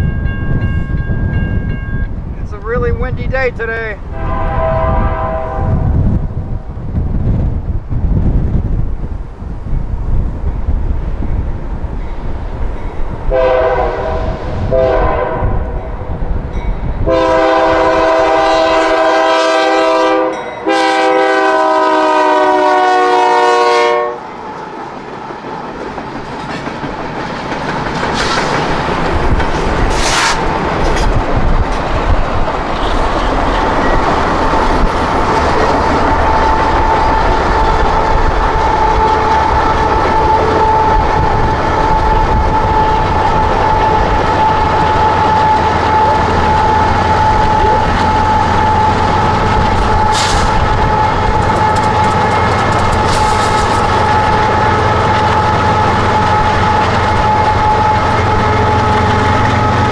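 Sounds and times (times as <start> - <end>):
wind noise: 0.0 - 19.1, 24.8 - 59.9
locomotive horn blasts: 4.1 - 5.8, 13.3 - 15.8, 17.0 - 24.2, 36.1 - 49.2, 49.8 - 59.9
locomotives running hard: 24.4 - 59.9.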